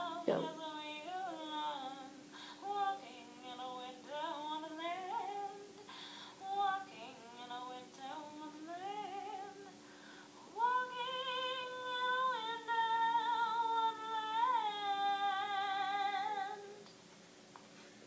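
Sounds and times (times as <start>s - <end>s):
woman singing slowly: 0.0s - 5.8s, 6.4s - 9.8s, 10.5s - 16.9s.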